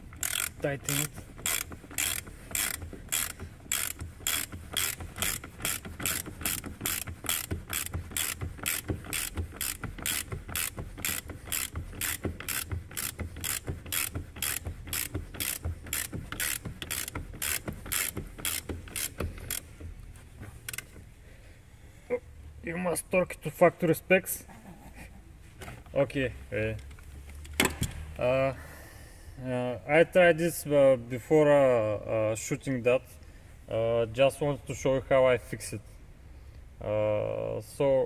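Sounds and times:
ratchet wrench clicking: 0.0s - 19.8s, 20.6s - 21.0s.

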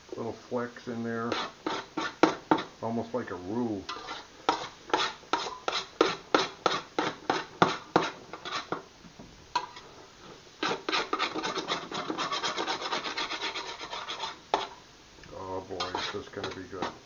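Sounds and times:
metal spoon scraping a pot: 1.3s - 2.7s, 3.9s - 8.8s, 10.6s - 14.8s, 15.7s - 17.0s.

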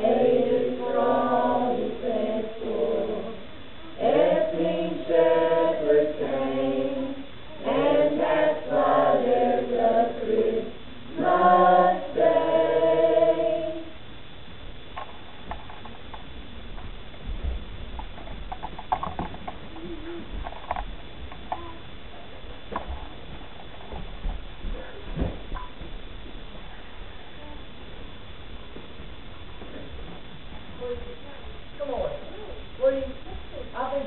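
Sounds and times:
mixed choir singing: 0.0s - 3.4s, 4.0s - 14.0s.

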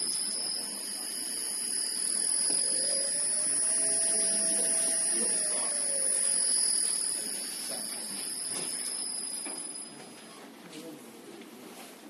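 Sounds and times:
electric motor slowing down: 0.0s - 9.2s
inverter whine: 0.0s - 10.6s.

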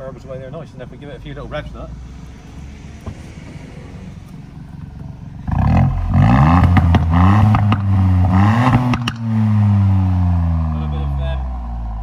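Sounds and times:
car engine idling and revving: 0.0s - 12.0s
exhaust pops and crackles: 4.2s - 9.8s.

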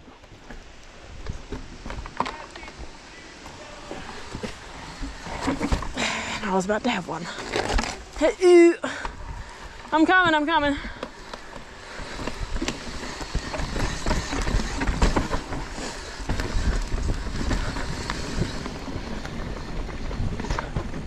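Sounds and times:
bike knocking and rattling: 0.0s - 6.5s, 8.9s - 21.0s
wind rumbling on microphone: 9.0s - 21.0s.

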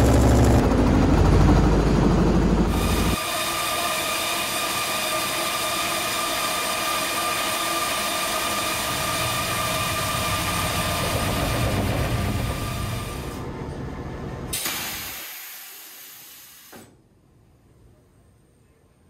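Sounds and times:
deep rumble: 0.0s - 3.2s, 8.9s - 14.5s
machine hum with high whine: 0.0s - 19.0s.

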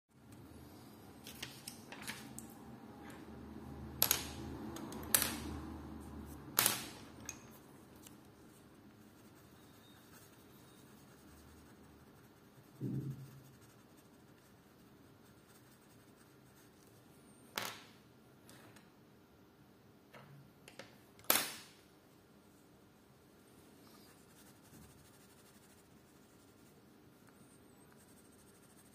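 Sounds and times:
pencils clicking on wooden table: 4.0s - 5.6s.

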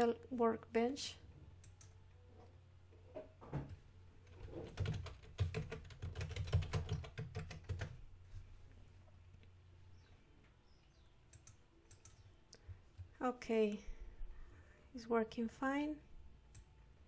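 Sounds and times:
keyboard typing: 1.6s - 2.0s, 4.3s - 8.0s, 11.3s - 12.4s.

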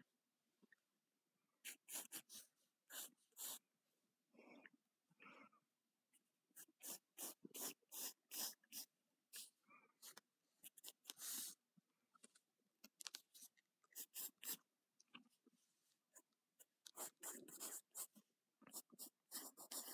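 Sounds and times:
pencil scratching on paper: 1.6s - 3.6s, 6.6s - 11.6s, 13.4s - 14.6s, 16.2s - 19.9s.

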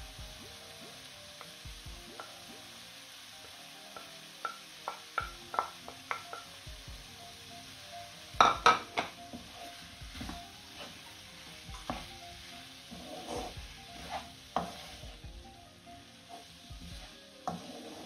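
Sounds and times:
faint sizzle: 0.0s - 18.0s
food stirred in frying pan: 0.0s - 18.0s
spatula tapping on plate: 4.0s - 6.5s, 8.4s - 9.2s.

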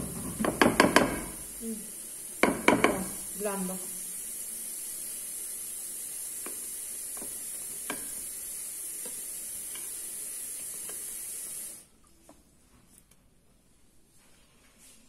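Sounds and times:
steady high hiss: 0.0s - 11.9s.

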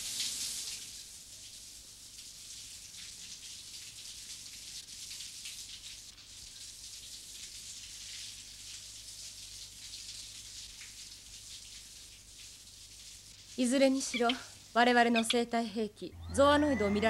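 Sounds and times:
shower water spraying: 2.5s - 15.4s.

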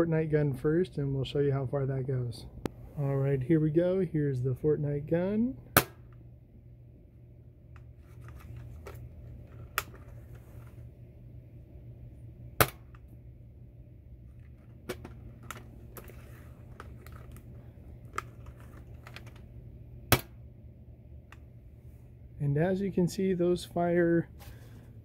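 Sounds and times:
toy dart blaster pops: 5.8s - 6.1s, 12.6s - 12.9s.

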